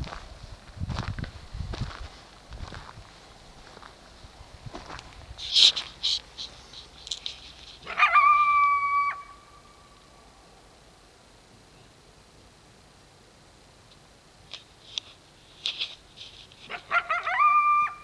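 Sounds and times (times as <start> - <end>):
coyote yips: 7.8 - 9.7, 16.7 - 18.0
coyote howl: 7.8 - 10.1, 16.7 - 18.0.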